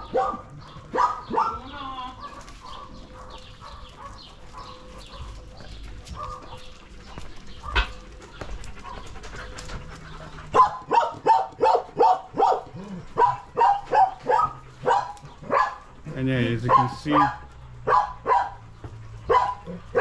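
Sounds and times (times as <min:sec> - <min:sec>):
dog barking: 0:00.0 - 0:05.4, 0:06.1 - 0:06.6, 0:10.6 - 0:15.9, 0:16.5 - 0:20.0
dogs yipping and whining: 0:00.0 - 0:20.0.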